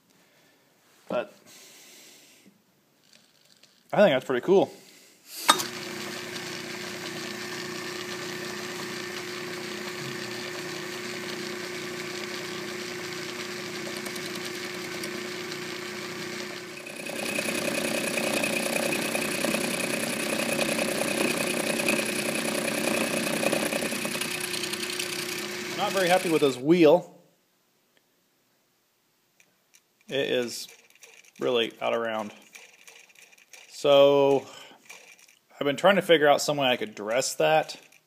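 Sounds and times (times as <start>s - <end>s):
metal lathe humming: 5.5s - 26.6s.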